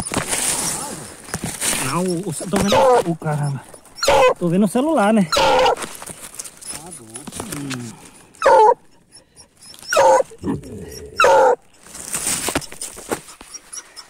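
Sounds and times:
dog whining: 0.0 - 4.5, 5.3 - 7.2, 8.4 - 11.9, 12.6 - 14.0
dog barking: 2.6 - 4.4, 5.3 - 5.8, 8.4 - 8.8, 9.9 - 10.4, 11.2 - 11.6.

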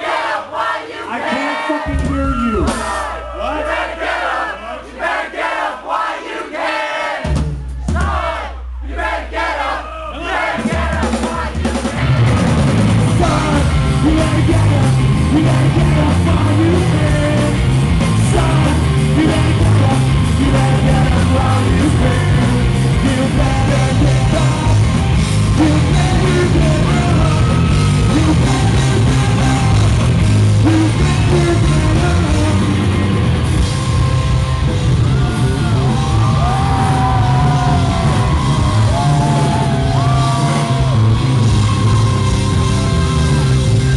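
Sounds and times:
singer yelling and singing: 0.4 - 5.0, 9.3 - 33.0
rock band playing: 1.8 - 4.4, 7.2 - 43.9.

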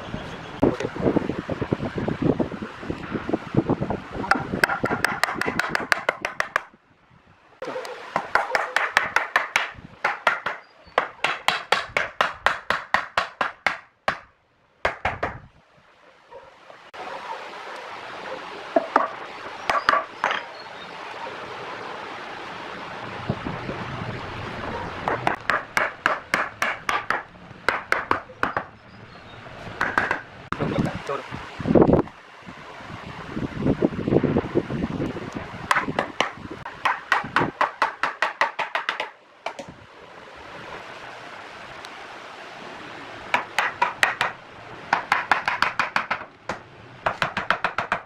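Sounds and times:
wooden mallet tapping wood: 4.3 - 6.7, 8.2 - 15.4, 25.1 - 28.7, 29.8 - 30.2, 35.7 - 39.7, 43.3 - 48.0.

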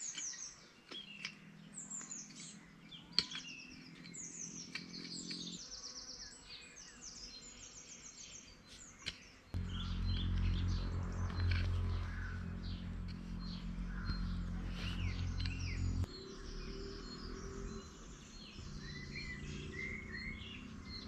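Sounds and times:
small birds chirping: 0.0 - 21.0
low steady hum: 9.6 - 16.4.

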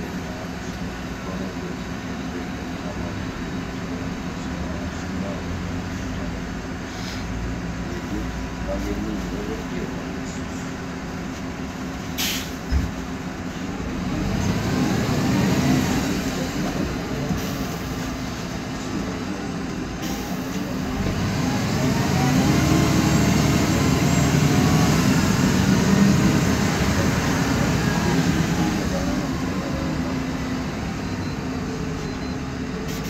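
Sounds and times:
bus engine whine: 0.0 - 33.0
short hiss: 12.2 - 12.6
thump: 12.7 - 13.0.

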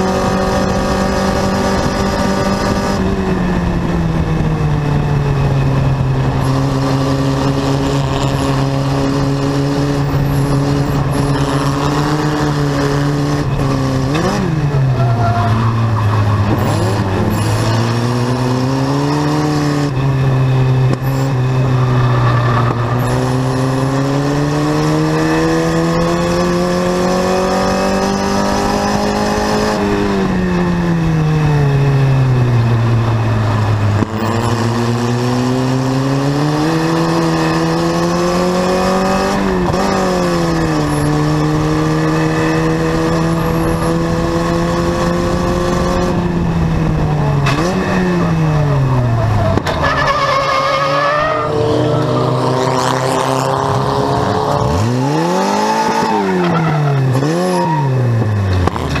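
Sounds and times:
race car engine revving: 0.0 - 59.0
faint tyre squeal: 14.9 - 17.5, 48.9 - 52.4, 55.8 - 58.1.

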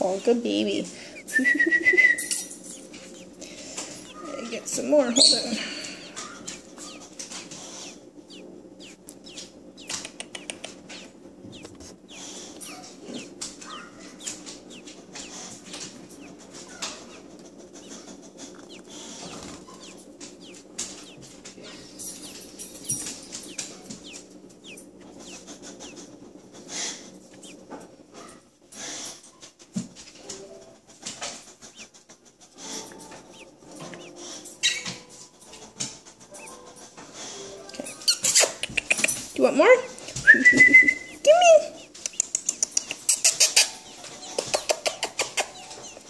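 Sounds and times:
baby birds peeping: 0.0 - 46.0.

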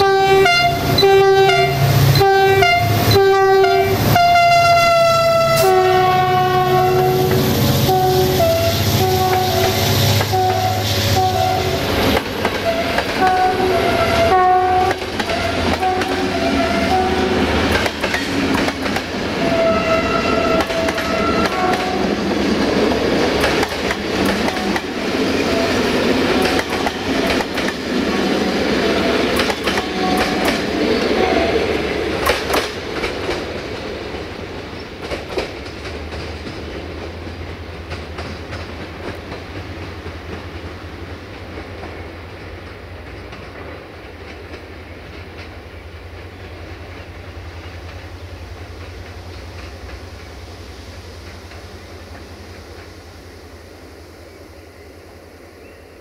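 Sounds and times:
locomotive horn toots: 0.0 - 17.6, 19.3 - 22.2, 28.9 - 31.8
train wheels clickety-clack: 7.2 - 50.5, 51.1 - 53.0.

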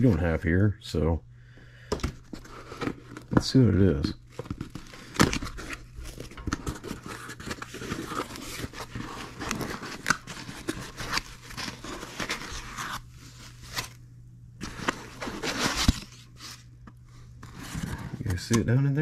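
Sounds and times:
foam packing sheets rustling: 2.2 - 14.0, 14.6 - 18.7
cardboard scraping: 4.3 - 14.0, 14.6 - 16.7, 17.4 - 18.6.

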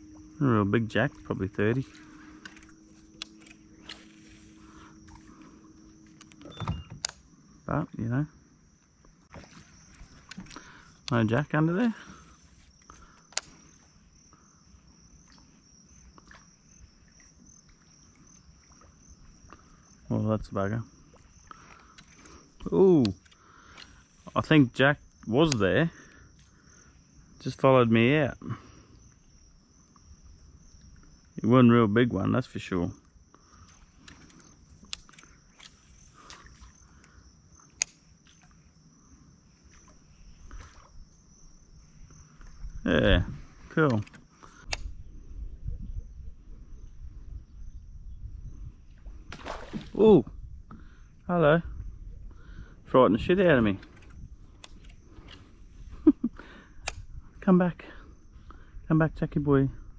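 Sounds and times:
insects trilling: 0.0 - 59.9
sharp clicks: 13.2 - 13.6, 34.0 - 35.8, 37.7 - 38.0, 43.8 - 44.9, 56.8 - 57.1
faint ticks: 33.0 - 38.6
sharp click: 56.8 - 57.1.

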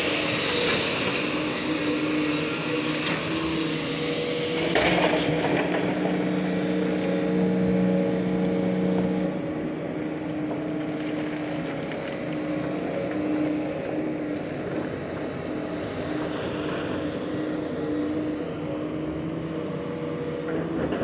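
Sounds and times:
excavator diesel engine under load: 0.0 - 21.0.

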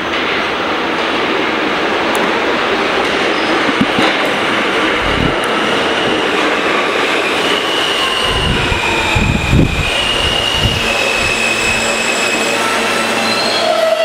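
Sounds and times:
subway train pulling in: 0.0 - 14.0
train wheels squealing: 5.5 - 14.0.

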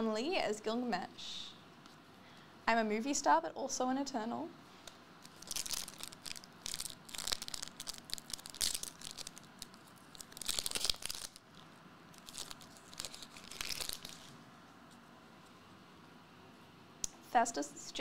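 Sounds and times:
foil wrapper tearing and crinkling: 5.2 - 14.4.

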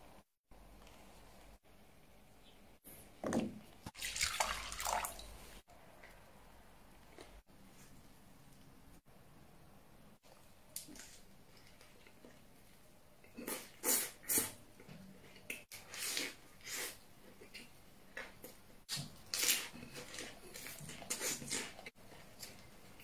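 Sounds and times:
person chewing crunchy lettuce: 19.2 - 23.0.

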